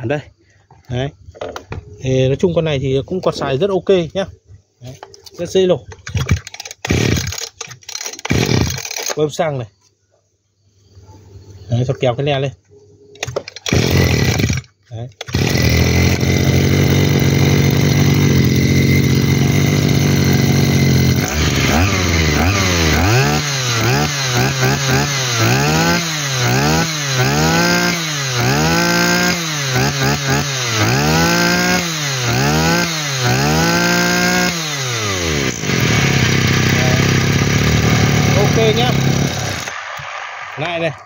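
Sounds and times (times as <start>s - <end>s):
brush cutter engine revving: 6.1s - 9.2s, 13.2s - 40.1s.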